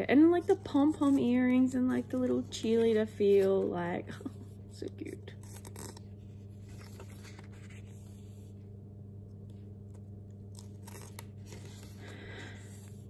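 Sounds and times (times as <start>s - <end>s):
steady low hum: 0.0s - 13.0s
paper pages rustling: 5.0s - 8.6s, 9.5s - 13.0s.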